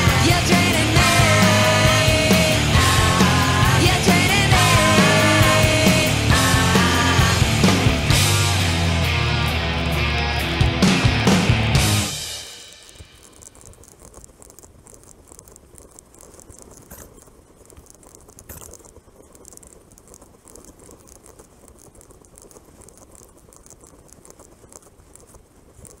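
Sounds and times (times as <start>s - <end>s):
sharp bike clicks: 10.4s - 26.0s
bicycle rattling: 12.6s - 26.0s.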